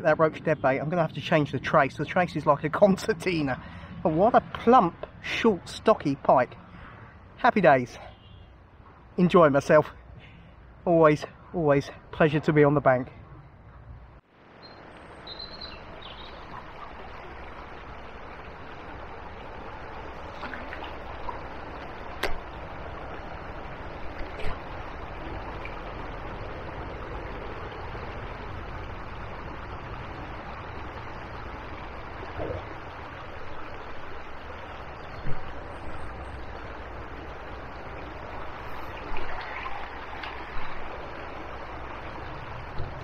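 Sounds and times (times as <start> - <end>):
river water rushing: 14.3 - 43.0.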